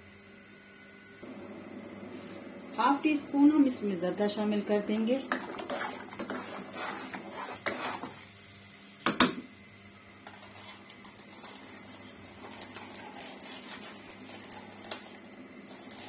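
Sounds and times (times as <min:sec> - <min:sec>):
faint hiss of heating water: 0:00.0 - 0:16.0
spoon stirring in steel pot: 0:05.2 - 0:08.2, 0:10.2 - 0:15.1.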